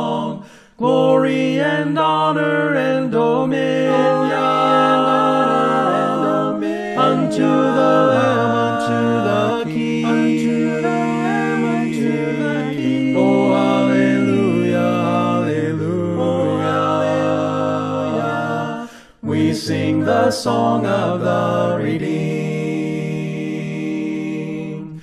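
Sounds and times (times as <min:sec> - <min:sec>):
choir singing a hymn: 0:00.0 - 0:25.0.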